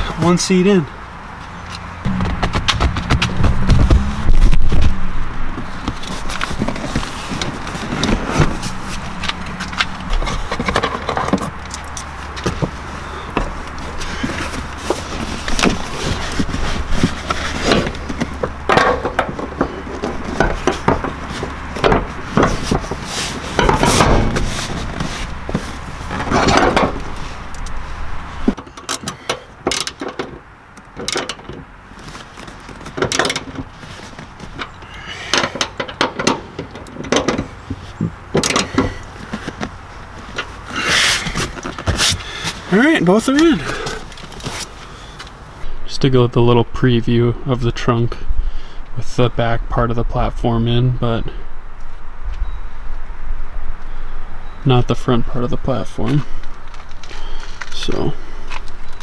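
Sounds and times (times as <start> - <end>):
low steady hum: 1.5 - 28.6
seat frame clunks and squeaks: 1.6 - 27.5, 32.3 - 42.7.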